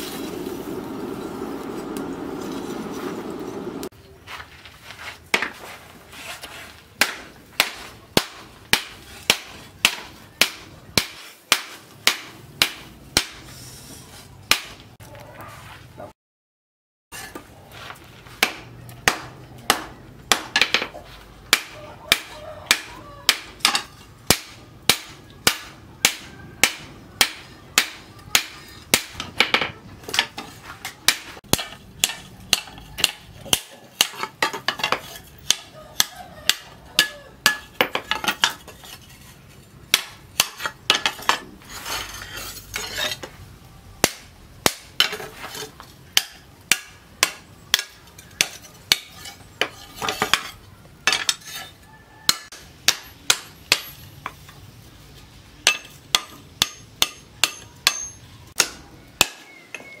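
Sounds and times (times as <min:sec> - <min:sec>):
hammer striking metal on anvil: 0:31.1 - 0:38.6, 0:52.3 - 0:54.0, 0:55.6 - 0:59.9.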